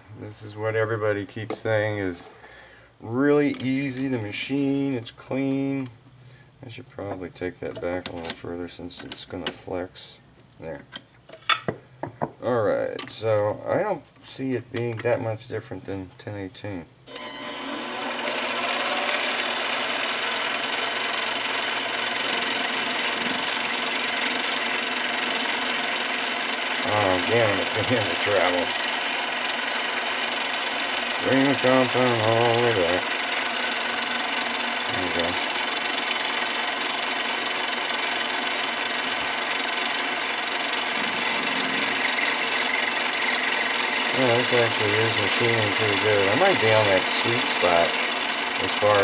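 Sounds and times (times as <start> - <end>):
lathe motor: 17.1 - 49.0
cutting tool scraping hiss: 40.9 - 49.0.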